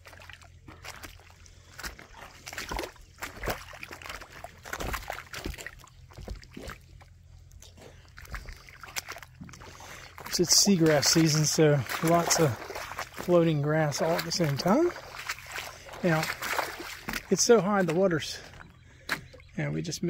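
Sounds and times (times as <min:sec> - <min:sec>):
water lapping and sloshing: 0:00.0 - 0:20.0
knocks of wooden boardwalk: 0:04.6 - 0:07.1.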